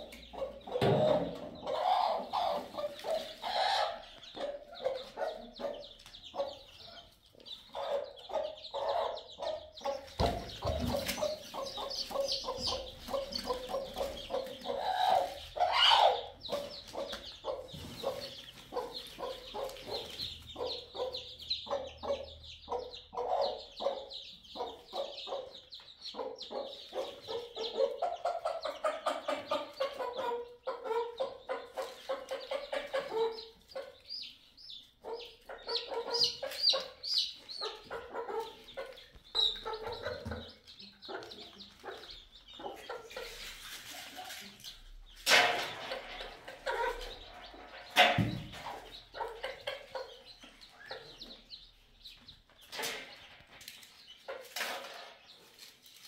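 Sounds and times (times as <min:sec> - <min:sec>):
hen clucking: 0:00.0 - 0:55.4
chicks peeping: 0:00.0 - 0:56.0.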